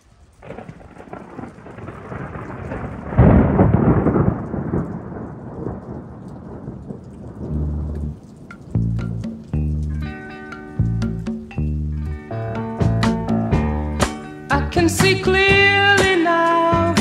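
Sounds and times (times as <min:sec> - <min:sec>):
thunder rumbling: 0:00.0 - 0:11.3.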